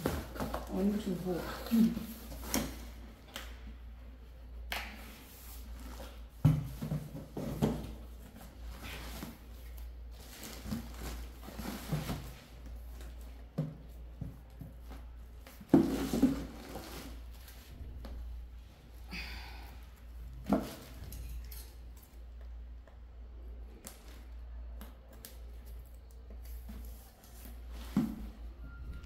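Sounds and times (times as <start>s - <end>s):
cardboard and bubble wrap rustling: 0.0s - 3.0s, 5.3s - 18.2s.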